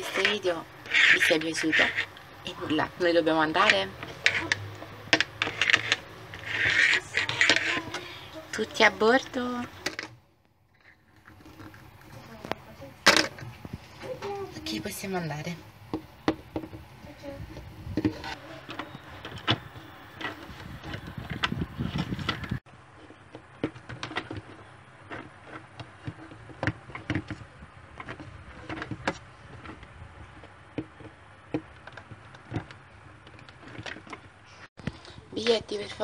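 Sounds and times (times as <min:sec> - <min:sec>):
plastic toys clicking and knocking: 0:00.0 - 0:10.2, 0:18.0 - 0:35.6.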